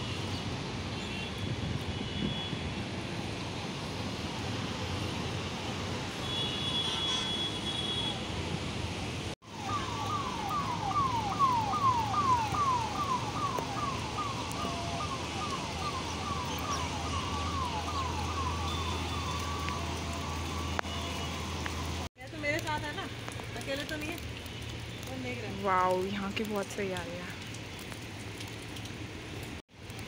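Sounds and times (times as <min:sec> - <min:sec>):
rain: 0:00.0 - 0:30.0
emergency siren yelping: 0:09.4 - 0:22.1.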